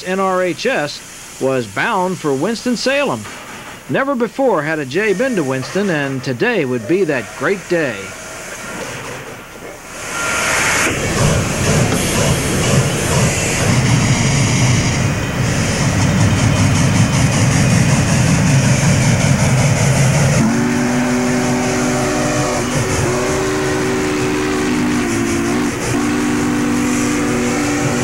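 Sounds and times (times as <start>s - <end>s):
steam locomotive rumbling past: 0.0s - 28.0s
steam whistle blasts: 4.6s - 8.8s, 9.9s - 15.9s, 17.3s - 28.0s.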